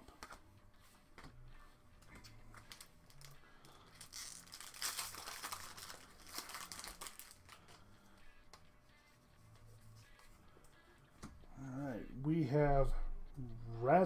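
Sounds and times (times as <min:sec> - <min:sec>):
foil wrapper crinkling: 0:02.6 - 0:07.8.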